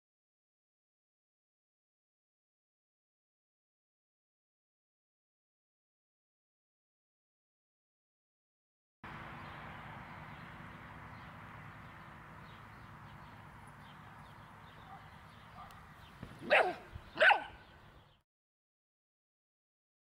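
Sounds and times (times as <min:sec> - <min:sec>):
puppy barking: 0:14.8 - 0:15.8, 0:16.4 - 0:17.7.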